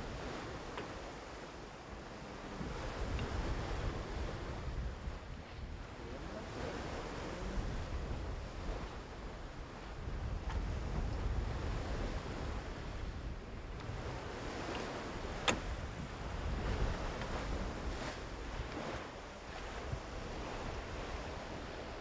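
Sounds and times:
wind buffeting microphone: 0.0s - 22.0s
sea water washing: 10.7s - 22.0s.

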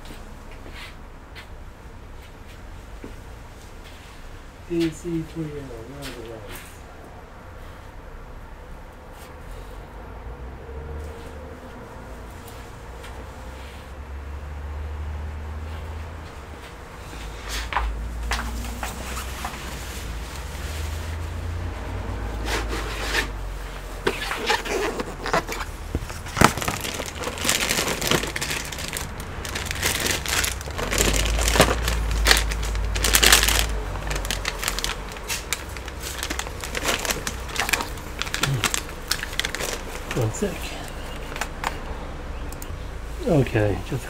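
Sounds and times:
plastic bags crinkling: 24.0s - 41.8s.

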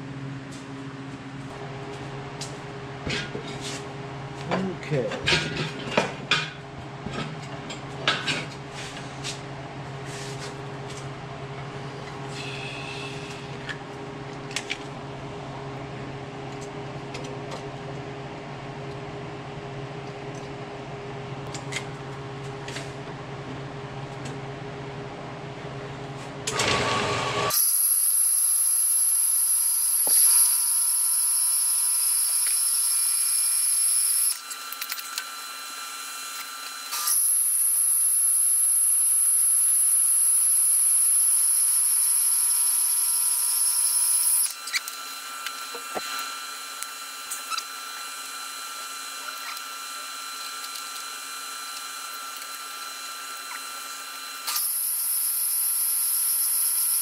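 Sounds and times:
band saw machine hum: 11.8s - 13.6s
high-pitched saw whine: 12.3s - 13.6s, 27.5s - 34.5s, 35.5s - 57.0s.

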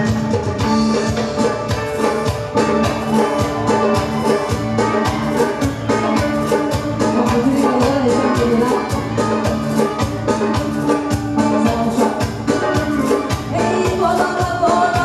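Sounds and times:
live band playing dance tune: 0.0s - 15.0s.

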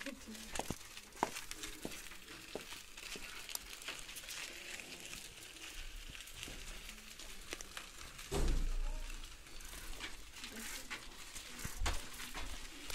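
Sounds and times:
bicycle rolling over gritty dirt: 0.0s - 12.9s.

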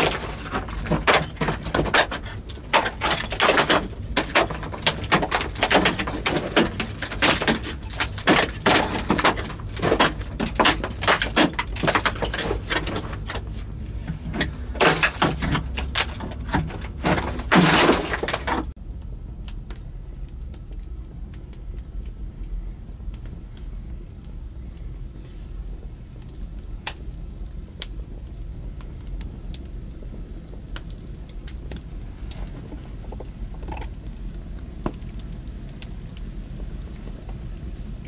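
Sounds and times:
rock cracking and knocking: 0.0s - 18.8s, 28.8s - 37.5s
rock crumbling: 0.0s - 18.8s, 29.5s - 38.0s
low background with faint ticks: 18.8s - 38.0s.

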